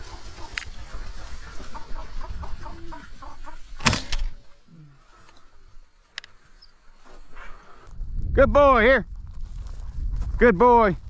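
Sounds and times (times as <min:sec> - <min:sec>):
grouse clucking: 0:00.0 - 0:07.0.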